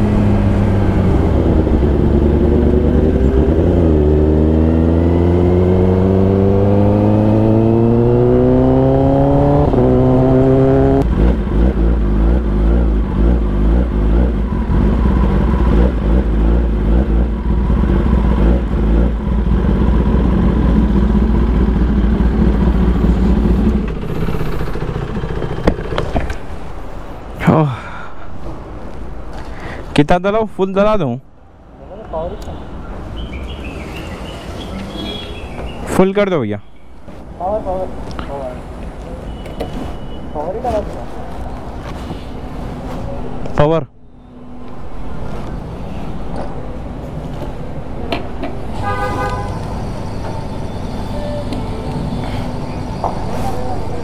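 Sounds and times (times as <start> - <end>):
motorcycle engine accelerating: 0.0 - 26.4.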